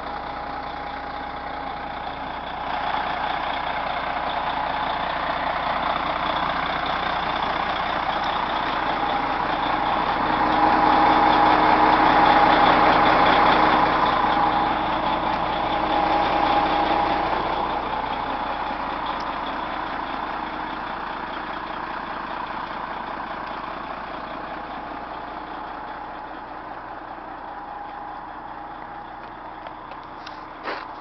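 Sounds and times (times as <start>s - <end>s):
diesel engine idling: 0.0s - 31.0s.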